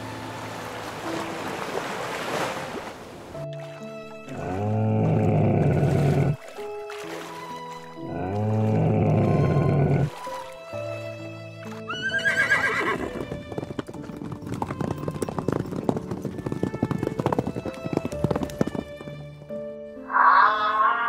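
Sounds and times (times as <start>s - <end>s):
background music with held notes: 0.0s - 21.0s
horse whinnying: 8.1s - 10.1s, 11.9s - 13.3s, 20.0s - 21.0s
horses galloping: 12.0s - 19.6s.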